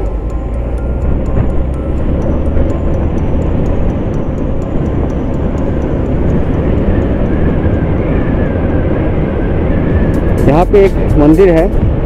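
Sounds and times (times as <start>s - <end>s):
motorcycle engine: 0.0s - 11.3s
wind rush on microphone: 2.6s - 12.0s.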